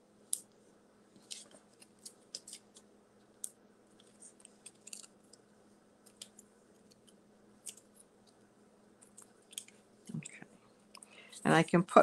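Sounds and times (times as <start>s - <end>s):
paper crinkling and ticking: 0.3s - 8.4s, 9.0s - 9.8s.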